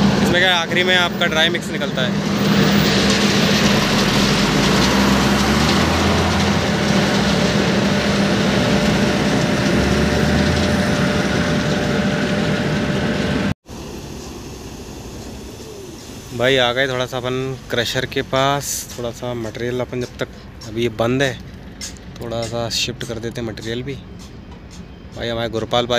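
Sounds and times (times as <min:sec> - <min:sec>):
diesel truck engine drone: 0:00.0 - 0:25.9
tyres rolling over gravel: 0:00.1 - 0:24.0.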